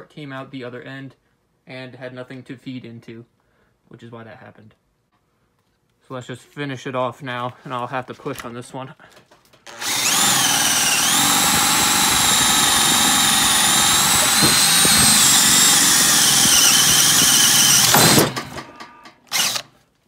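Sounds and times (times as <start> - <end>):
cordless drill boring through wood: 9.6 - 18.5, 19.3 - 19.7.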